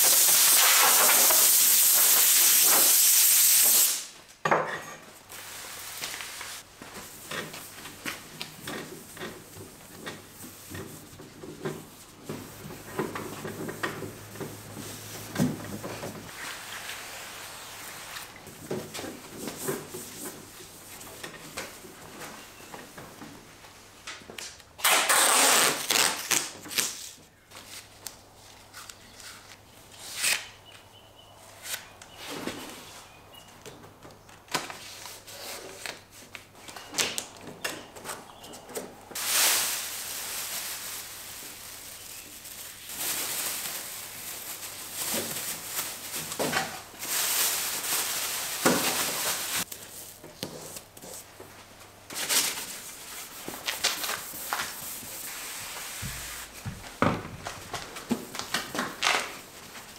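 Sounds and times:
plastic sheeting crinkling: 5.3s - 13.4s, 24.8s - 29.6s, 39.2s - 59.9s
masking tape pulled off roll: 24.8s - 27.2s.

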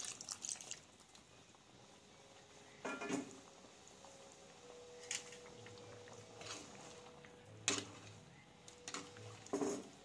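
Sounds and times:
gravy simmering: 0.0s - 10.0s
ladle stirring in pot: 5.2s - 10.0s.

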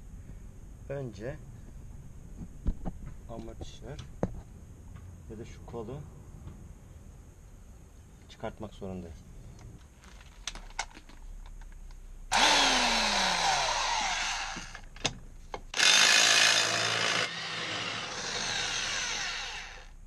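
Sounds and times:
electric impact wrench running: 12.3s - 14.9s, 15.8s - 19.9s.

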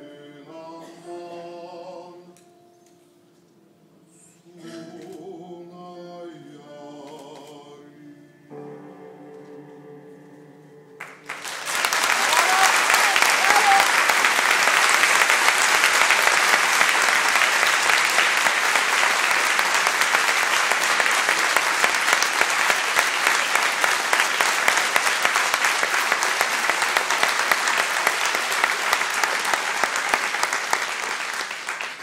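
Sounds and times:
audience applauding: 11.0s - 32.0s.

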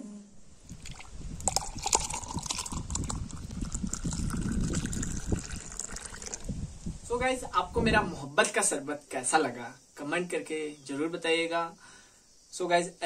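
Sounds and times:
liquid pouring into a glass: 0.7s - 6.5s.

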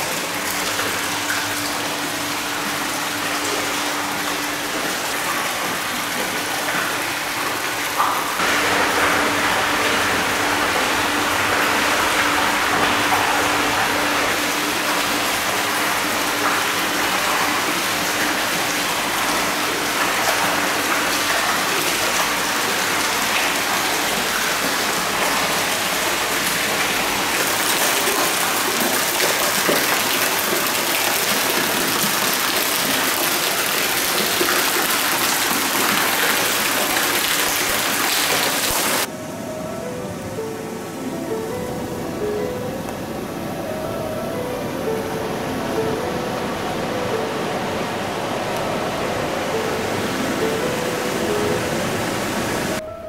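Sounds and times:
water pouring into a bath: 0.0s - 39.1s.

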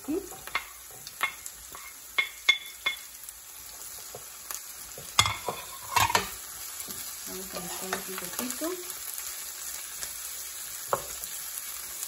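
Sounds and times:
vegetables sizzling in oil: 0.0s - 12.0s
wooden spoon knocking on pan: 10.9s - 11.2s.

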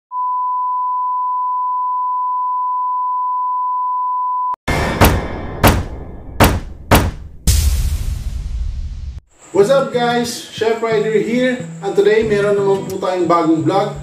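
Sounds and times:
heavy hits: 4.7s - 9.2s.

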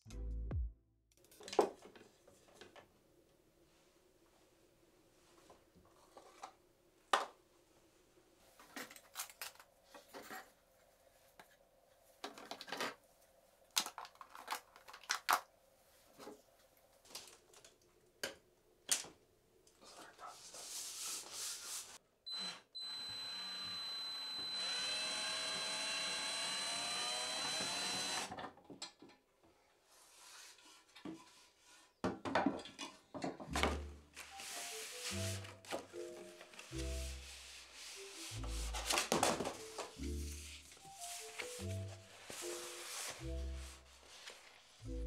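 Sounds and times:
handheld power tool whining: 22.3s - 28.3s.

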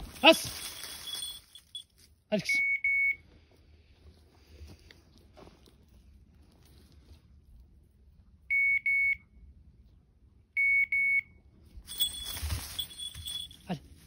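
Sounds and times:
rustling brush and leaves: 0.0s - 2.2s, 11.9s - 14.0s
beeper collar beeps: 2.4s - 3.2s.

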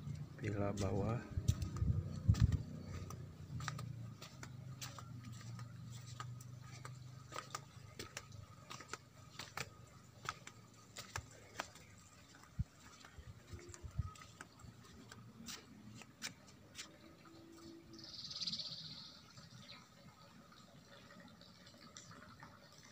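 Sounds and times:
footsteps on flagstones: 0.0s - 17.3s.

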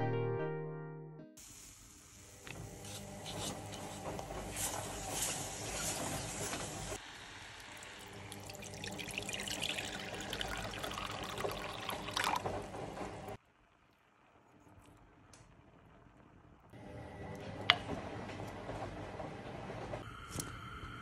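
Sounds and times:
wooden spoon stirring thick paste: 2.8s - 5.0s
water pouring into pot: 4.9s - 12.7s.

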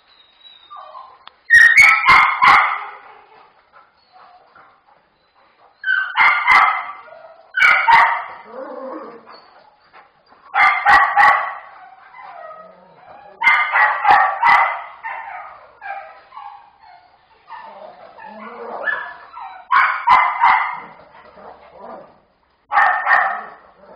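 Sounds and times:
dogs yipping and grumbling: 0.2s - 23.9s
dogs barking: 1.6s - 3.1s, 5.5s - 8.5s, 10.5s - 12.0s, 13.4s - 16.8s, 17.6s - 22.0s, 22.7s - 23.9s.

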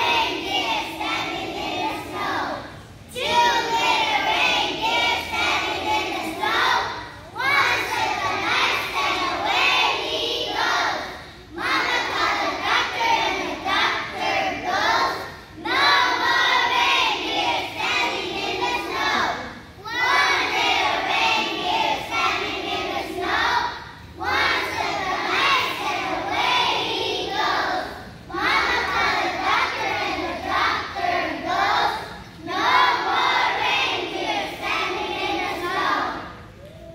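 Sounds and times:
children singing together: 0.0s - 36.9s.

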